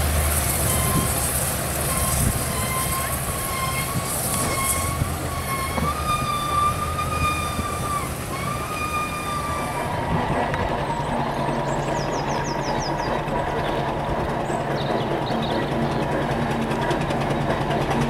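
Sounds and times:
steam engine low running: 0:00.0 - 0:18.0
steam whistle blowing: 0:00.5 - 0:10.1.

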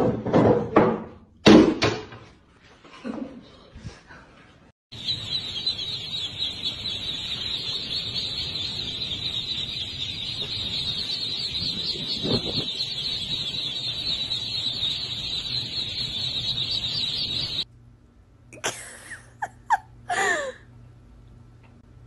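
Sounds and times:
ducklings peeping: 0:04.9 - 0:17.7.

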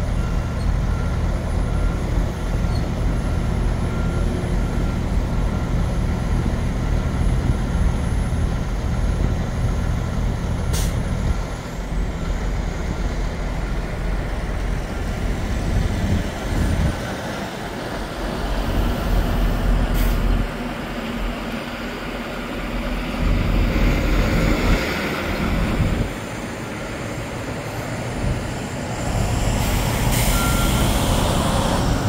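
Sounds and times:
truck diesel engine rumbling: 0:00.0 - 0:32.0
brief air hiss: 0:10.7 - 0:11.0.

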